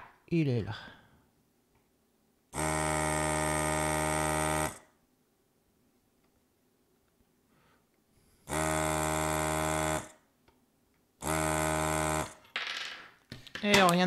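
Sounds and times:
desoldering vacuum pump buzzing: 2.6 - 4.8, 8.5 - 10.2, 11.2 - 12.4.

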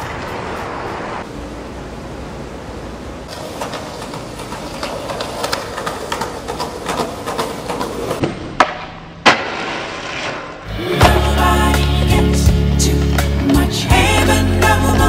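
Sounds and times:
skateboard wheels rolling on concrete: 0.0 - 15.0
skateboard tail popping: 3.3 - 12.1
skateboard scraping along metal: 3.3 - 13.6
skateboard landing on metal rail: 7.7 - 11.2.

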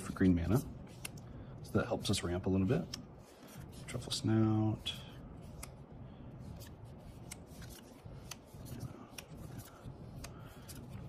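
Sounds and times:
cards sliding and rustling: 0.2 - 1.3, 2.0 - 4.2, 5.4 - 5.8, 6.4 - 11.0.

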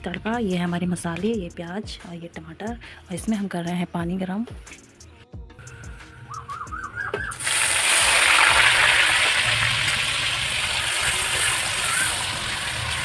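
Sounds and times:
hot oil sizzling: 7.3 - 13.0.

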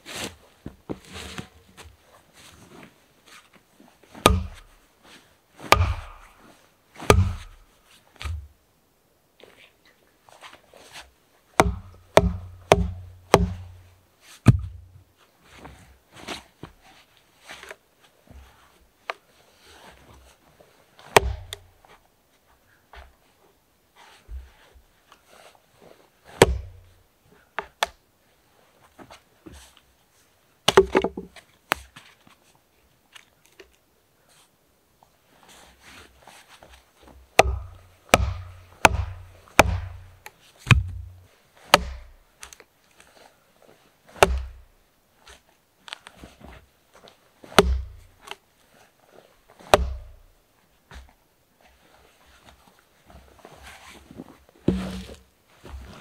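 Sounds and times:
axe striking log: 4.2 - 4.7, 5.7 - 6.4, 7.0 - 7.6, 11.6 - 13.8, 14.5 - 14.8, 21.1 - 21.7, 26.4 - 26.8, 30.7 - 31.3, 37.4 - 42.2, 44.2 - 44.6, 47.5 - 48.0, 49.6 - 50.2, 54.7 - 55.2
wooden club beating on axe: 4.2 - 4.7, 5.7 - 6.4, 7.0 - 7.6, 11.6 - 13.8, 14.5 - 14.8, 21.1 - 21.7, 26.4 - 26.8, 30.7 - 31.3, 37.4 - 42.2, 44.2 - 44.6, 47.5 - 48.0, 49.7 - 50.2, 54.7 - 55.2.

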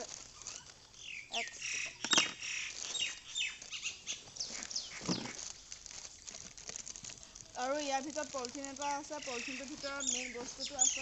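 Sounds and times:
plastic wrapping rustling: 0.0 - 11.0.

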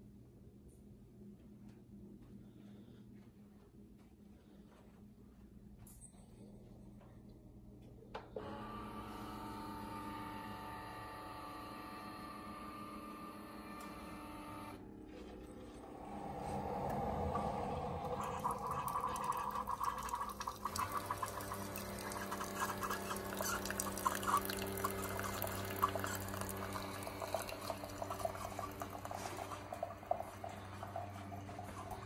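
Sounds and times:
coffee maker pump hum: 8.1 - 32.0
coffee pouring into a mug: 15.6 - 32.0.

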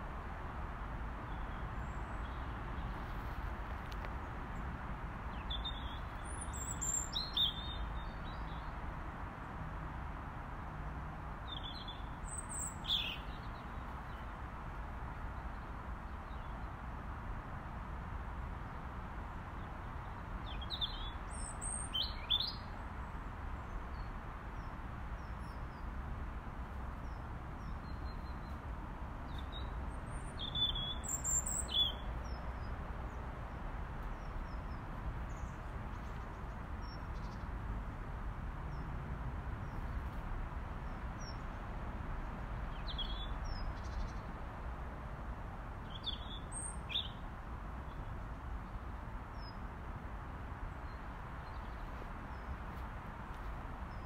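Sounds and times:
robin calling: 5.4 - 8.2, 11.5 - 13.7, 29.3 - 32.4.

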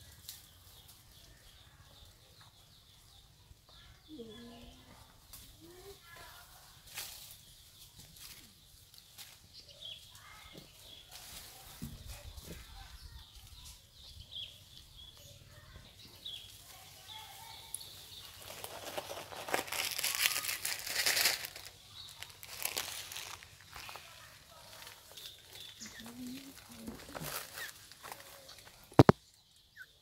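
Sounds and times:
leaves and twigs rustling: 0.0 - 2.1, 4.3 - 29.8.

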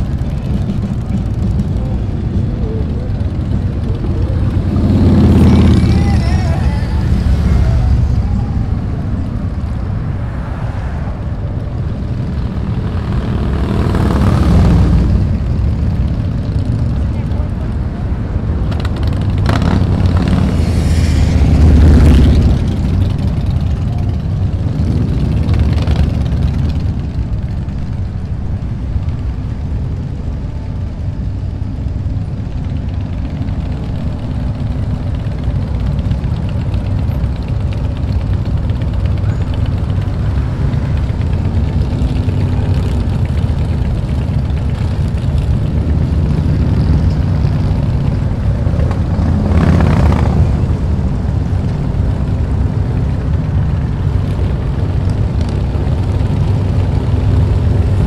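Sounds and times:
motorcycle passing close: 0.0 - 28.3, 31.3 - 58.0
motorcycle engines rumbling: 0.0 - 58.0.

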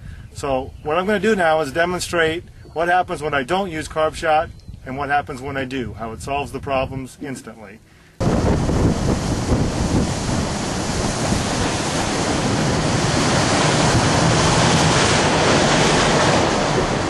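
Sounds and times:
wind blasting microphone: 0.0 - 7.5, 8.2 - 17.0
boat engine running low: 8.2 - 17.0
water rushing along hull: 8.2 - 17.0.

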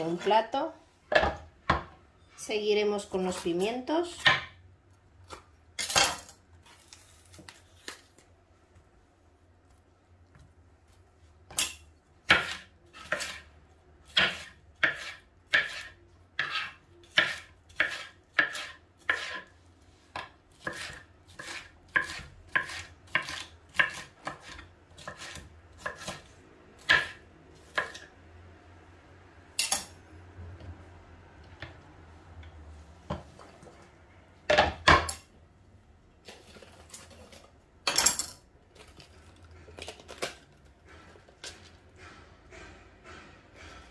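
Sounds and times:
knife cutting on a cutting board: 12.3 - 19.5, 20.1 - 28.1.

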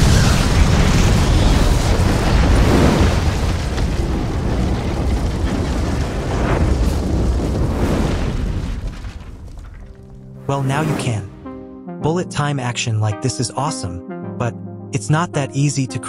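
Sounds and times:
deep explosion rumble: 0.0 - 11.7.

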